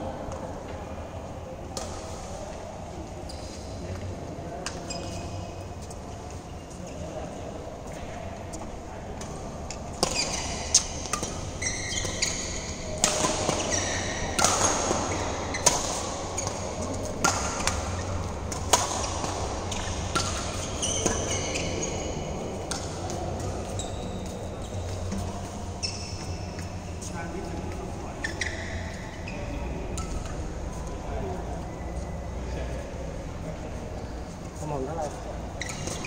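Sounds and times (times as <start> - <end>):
shoes squeaking on court: 3.2 - 7.3, 9.7 - 30.9, 34.0 - 36.0.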